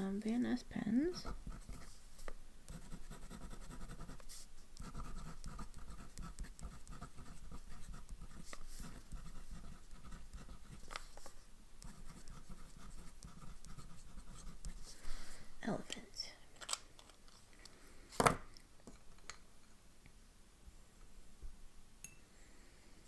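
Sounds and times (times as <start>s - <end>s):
pen nib scratching on card: 2.7s - 11.1s, 11.8s - 14.9s.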